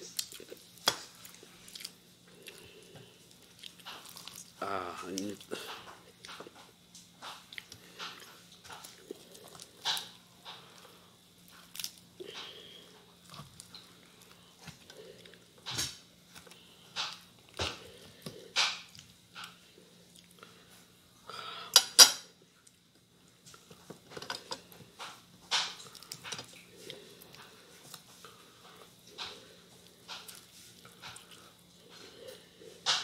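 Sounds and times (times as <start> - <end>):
chicken skin crackling and tearing: 11.5 - 12.0.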